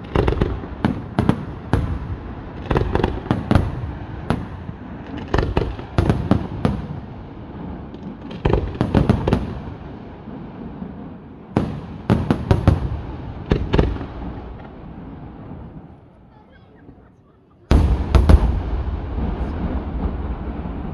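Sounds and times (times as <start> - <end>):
fireworks bursting with sharp bangs: 0.0 - 20.9
low rumble: 17.9 - 20.9.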